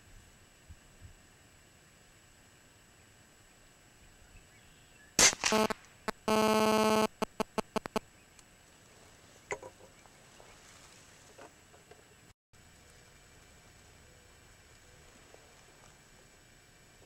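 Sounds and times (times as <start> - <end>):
air rifle shot: 5.2 - 5.8
buzzing tone: 5.2 - 8.0
sharp clicks: 5.2 - 8.0.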